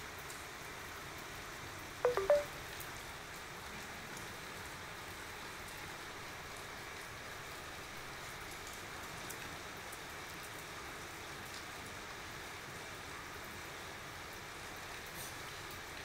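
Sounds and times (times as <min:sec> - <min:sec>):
rain falling on tiled roof: 0:00.0 - 0:16.0
drops ticking: 0:02.1 - 0:02.5.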